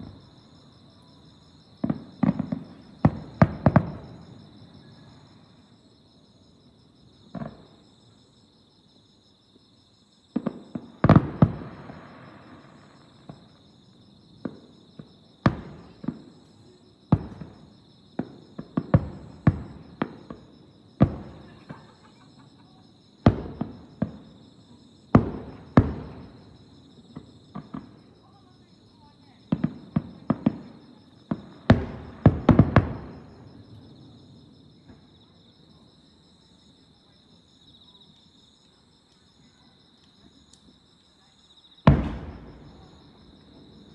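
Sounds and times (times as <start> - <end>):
distant firework booms: 1.8 - 5.4, 10.3 - 13.6, 14.4 - 16.4, 17.1 - 22.0, 23.2 - 24.4, 25.1 - 28.1, 29.5 - 35.1, 41.8 - 43.9.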